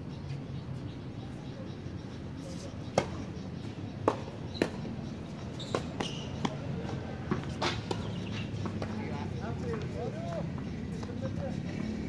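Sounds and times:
tennis balls struck by rackets: 2.9 - 3.3, 4.0 - 9.0
tennis balls bouncing on court: 4.0 - 11.2.

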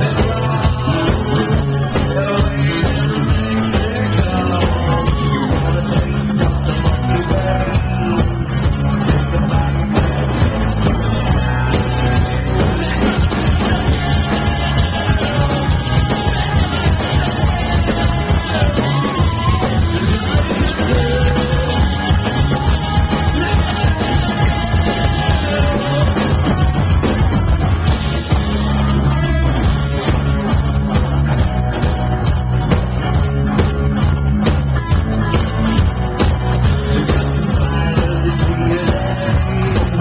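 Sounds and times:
man singing: 0.0 - 27.6, 36.7 - 40.0
drum kit: 0.0 - 40.0
electric guitar: 0.0 - 40.0.

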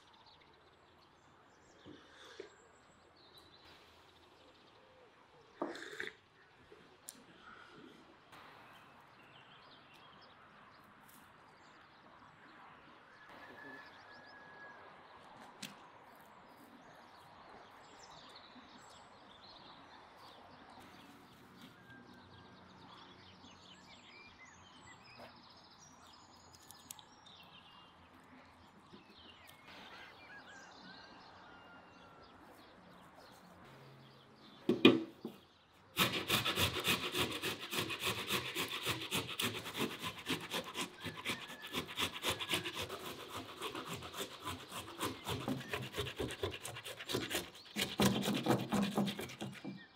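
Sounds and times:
bird chirps: 28.7 - 35.8
tomatoes grated on metal grater: 36.0 - 49.6.

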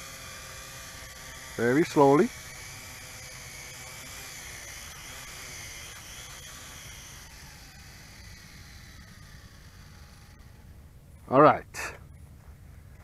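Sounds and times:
drone propellers whirring: 0.0 - 12.2.

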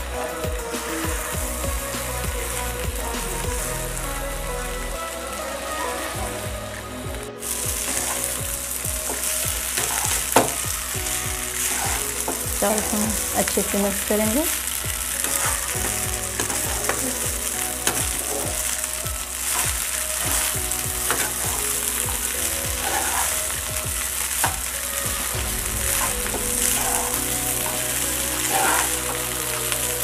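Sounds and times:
rice sizzling in a hot pan: 7.4 - 30.0
metal spatula scraping a pan: 9.0 - 10.6, 11.6 - 13.6, 19.4 - 22.0, 22.8 - 24.6, 25.9 - 29.7.

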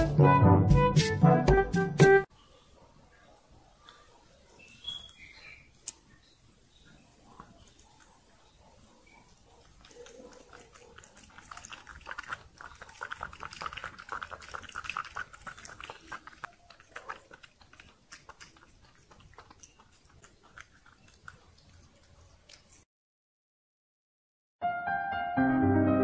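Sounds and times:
kitten licking glass: 9.6 - 22.8.

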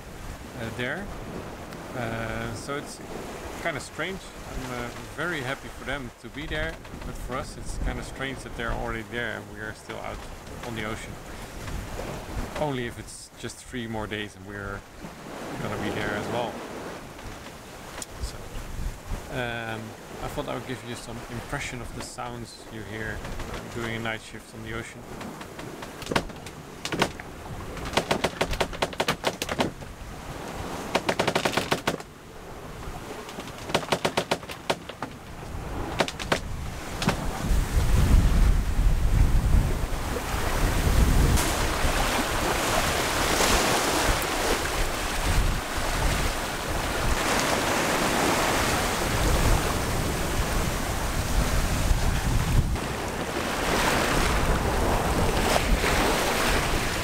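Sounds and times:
wind buffeting microphone: 0.0 - 12.6, 14.6 - 19.4, 25.0 - 31.0, 35.0 - 57.0
wind and waves rushing: 0.0 - 57.0
rapid rattling: 27.8 - 29.8, 30.9 - 32.0, 33.3 - 35.3.

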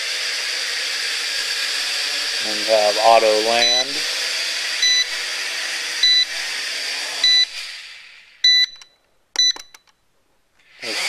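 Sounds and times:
drone motors whining: 0.0 - 8.4, 10.6 - 11.0
short beeps: 3.6 - 3.9, 4.8 - 5.1, 7.2 - 7.5, 8.4 - 9.8
sharp beeps with clicks: 4.8 - 5.2, 6.0 - 6.3, 7.2 - 7.5, 8.4 - 10.0.

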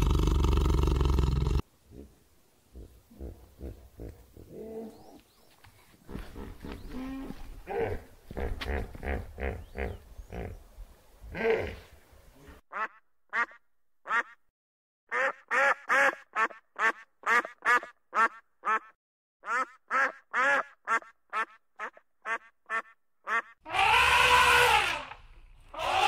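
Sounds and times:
animal grunting calls: 0.0 - 5.2, 6.1 - 10.6.

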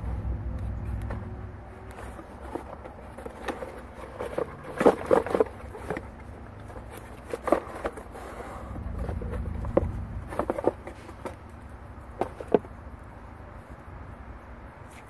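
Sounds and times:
cardboard packaging rustling: 1.6 - 12.8.

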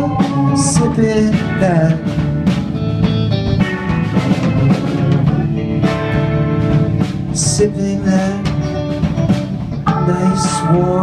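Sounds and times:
organ holding notes: 0.0 - 2.0, 9.8 - 11.0
bass guitar: 0.0 - 11.0
drum kit: 0.0 - 11.0
electric guitar: 0.0 - 11.0
pedal steel guitar: 8.5 - 11.0.

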